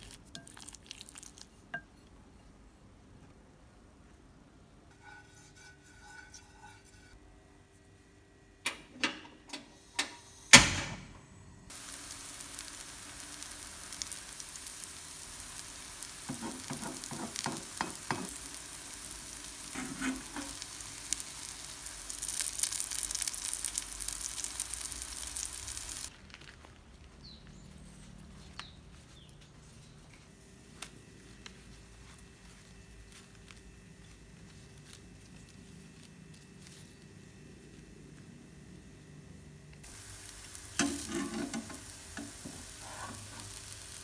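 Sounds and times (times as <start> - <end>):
batter sizzling in oil: 0.0 - 1.6, 11.7 - 26.7, 39.8 - 44.0
metal spatula scraping pan: 4.9 - 7.2, 19.7 - 20.6, 40.8 - 43.5.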